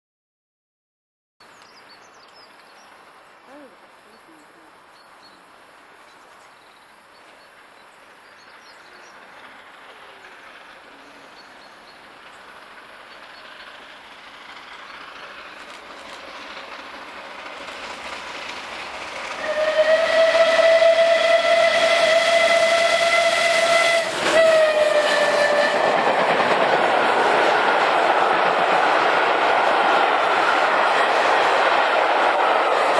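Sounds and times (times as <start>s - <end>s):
steam locomotive approaching: 1.8s - 32.9s
long steam whistle: 19.4s - 26.1s
rush of passing coaches: 21.2s - 32.9s.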